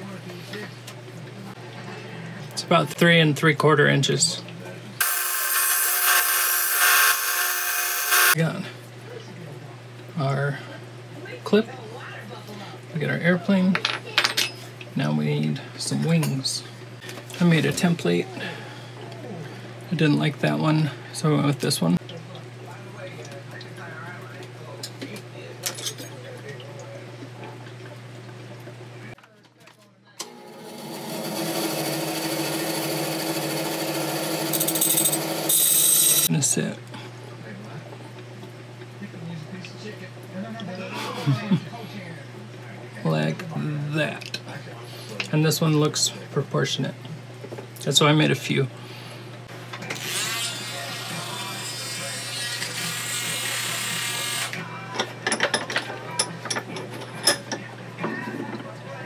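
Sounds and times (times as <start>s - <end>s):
band saw motor hum: 5.0s - 8.4s, 30.2s - 36.3s
metal tools clicking and knocking: 55.0s - 57.6s.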